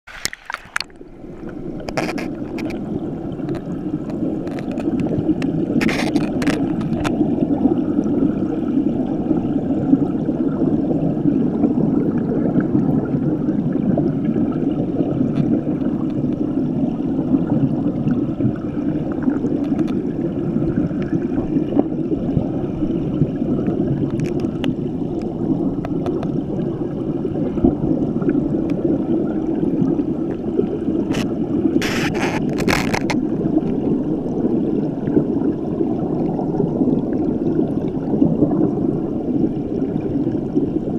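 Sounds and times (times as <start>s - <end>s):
muffled underwater river rushing: 0.1s - 40.9s.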